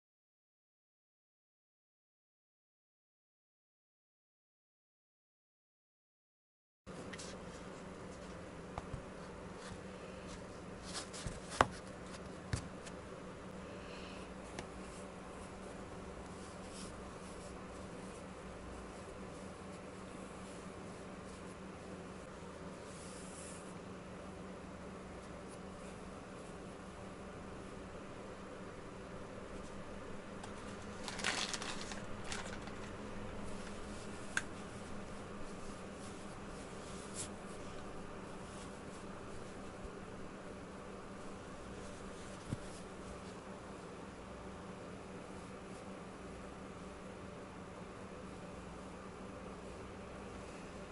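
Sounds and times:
low room hum: 6.9 - 50.9
soft rustling of wool: 14.3 - 23.8, 25.0 - 50.9.

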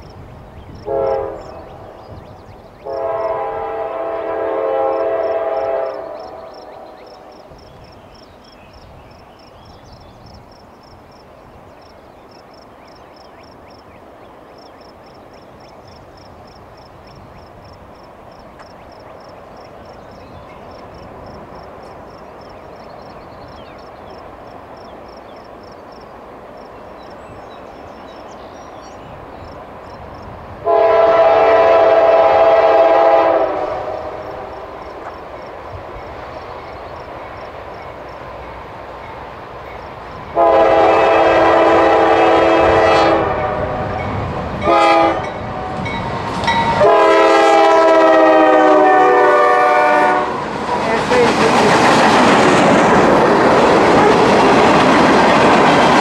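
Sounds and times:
freight train rumble: 0.0 - 56.0
locomotive air horn blast: 0.8 - 1.7, 2.8 - 6.9, 30.6 - 34.6, 40.4 - 44.0, 44.6 - 45.3, 46.8 - 50.4.

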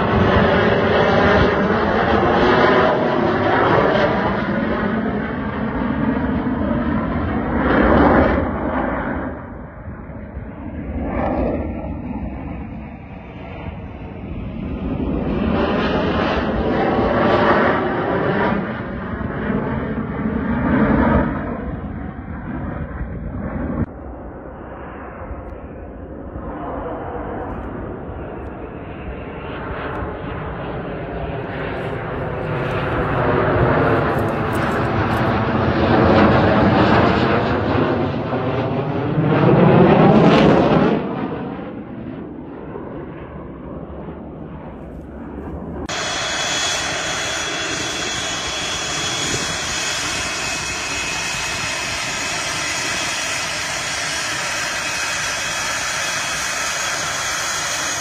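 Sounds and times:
jet flying past: 0.0 - 58.0
jet engines idling while taxiing: 21.2 - 37.8, 43.0 - 58.0.

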